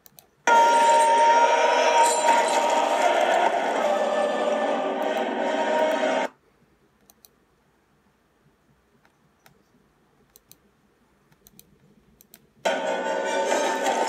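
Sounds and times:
faint computer mouse clicks: 0.0s - 0.3s, 7.0s - 7.4s, 9.0s - 10.7s, 11.3s - 12.5s
film soundtrack music: 0.5s - 6.3s, 12.7s - 14.0s.

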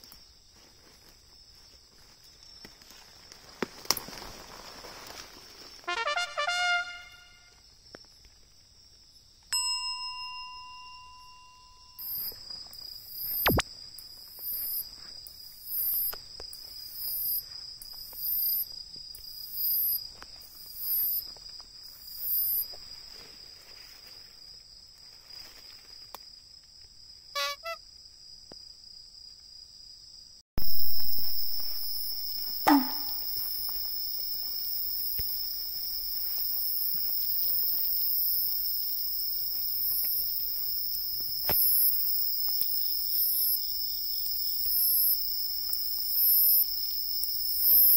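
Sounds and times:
high insect chorus: 0.0s - 9.4s, 11.3s - 47.9s
falling chime: 9.6s - 12.0s
katydid calling: 27.4s - 27.8s, 30.6s - 33.8s
held horn-like note: 32.7s - 33.3s.

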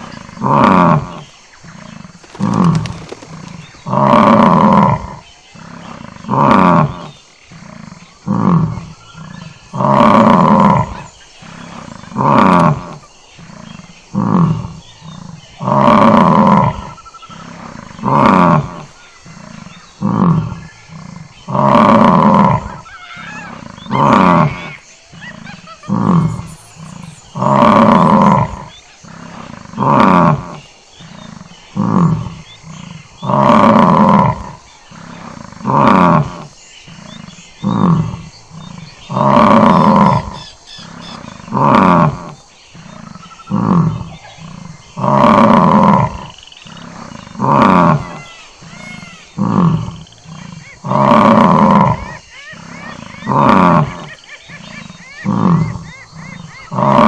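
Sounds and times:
bison bellowing: 41.1s - 57.0s.

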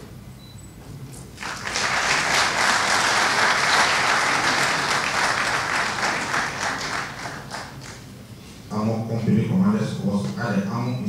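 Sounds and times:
audience applauding: 1.4s - 8.1s.

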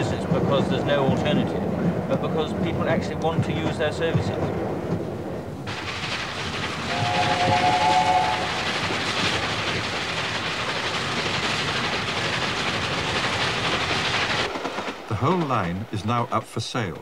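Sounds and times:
train running noise: 0.0s - 17.0s
steam locomotive chime whistle: 6.9s - 8.6s.

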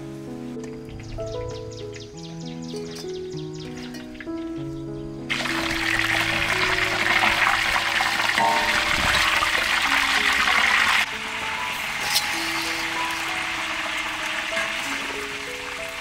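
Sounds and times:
fish sizzling in hot oil: 5.3s - 16.0s.

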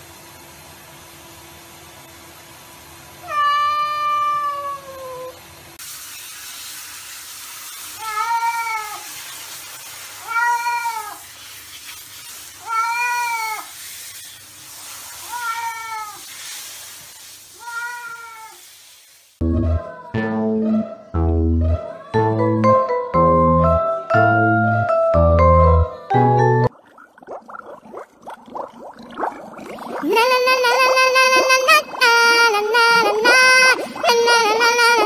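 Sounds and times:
cat meowing: 3.2s - 5.4s, 8.0s - 9.0s, 10.2s - 11.2s, 12.6s - 13.7s, 15.2s - 16.2s, 17.6s - 18.6s
shower spray hissing: 5.8s - 19.4s, 30.0s - 35.0s.

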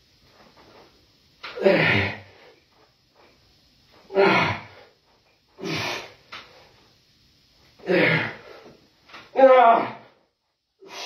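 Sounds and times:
man breathing out forcefully: 4.1s - 5.0s, 5.6s - 6.3s, 10.8s - 11.0s.

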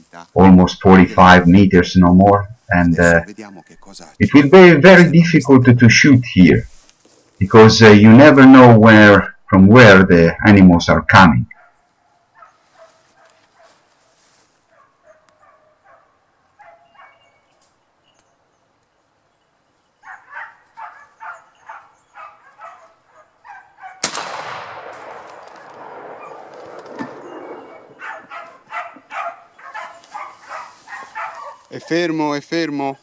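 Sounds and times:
dogs barking: 11.5s - 13.9s, 14.7s - 17.4s, 20.0s - 24.0s, 25.7s - 32.2s
loud shotgun shot: 24.0s - 28.0s.

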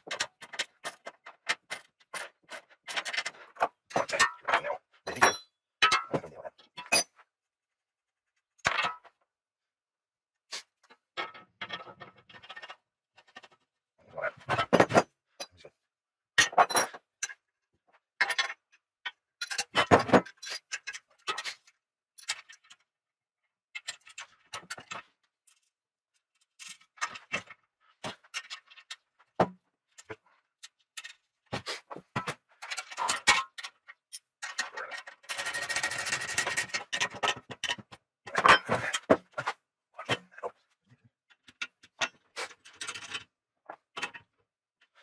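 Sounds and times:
steel parts clinking and knocking: 0.1s - 7.2s, 18.2s - 22.8s, 31.8s - 40.4s.

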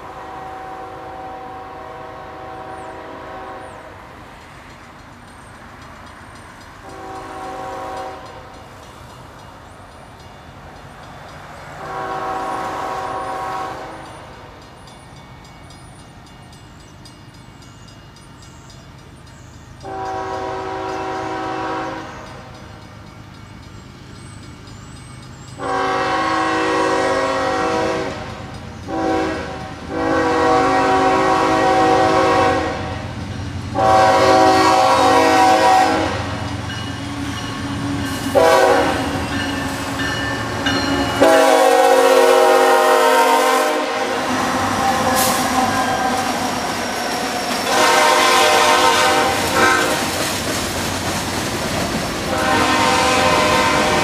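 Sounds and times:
locomotive air horn blasts: 0.0s - 4.0s, 6.9s - 8.5s, 11.8s - 14.3s, 19.8s - 22.2s, 25.6s - 33.1s, 33.7s - 36.4s, 38.3s - 39.2s, 40.8s - 46.4s, 47.6s - 50.1s, 52.3s - 54.0s
low rumble of passing train: 0.0s - 54.0s.

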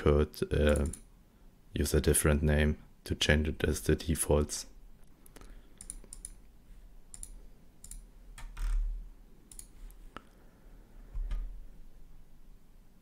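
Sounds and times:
mouse and keyboard clicks: 9.5s - 10.0s.

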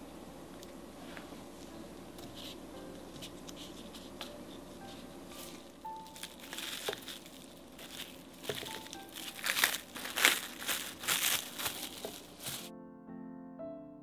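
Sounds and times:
faint background music: 0.9s - 13.0s
crinkling and rustling: 4.9s - 12.7s.

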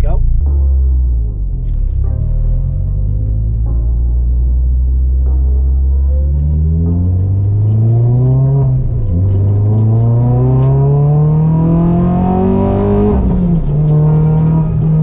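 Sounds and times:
car engine accelerating hard: 4.4s - 15.0s.

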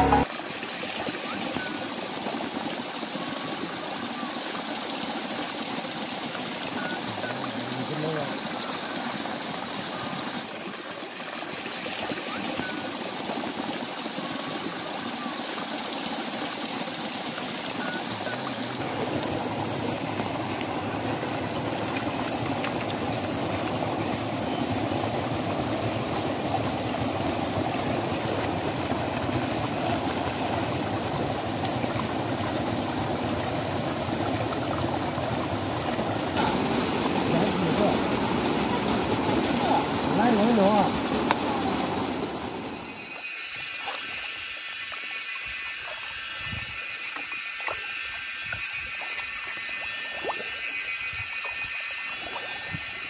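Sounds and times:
water gushing through a pipe: 0.0s - 53.0s.

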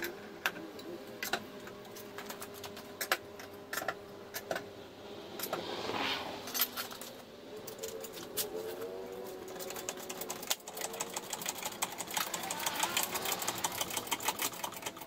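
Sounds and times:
faint steady hum: 0.0s - 15.0s
metal tools clinking: 6.4s - 15.0s.

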